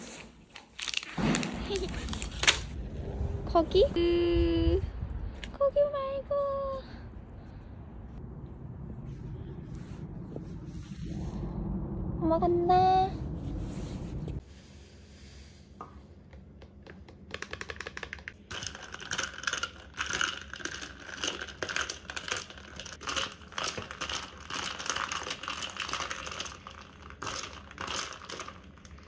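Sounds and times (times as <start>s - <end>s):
clicking and crinkling handling noise: 0.5s - 2.7s, 16.4s - 29.0s.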